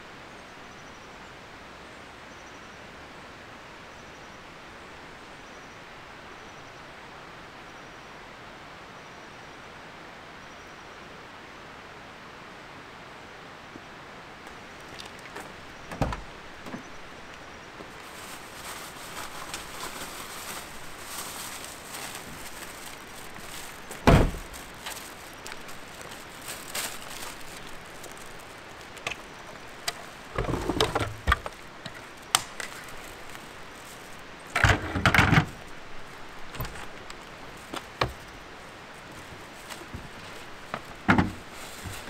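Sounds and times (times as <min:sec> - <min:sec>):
truck door slamming: 0:15.9 - 0:16.3, 0:24.0 - 0:24.5.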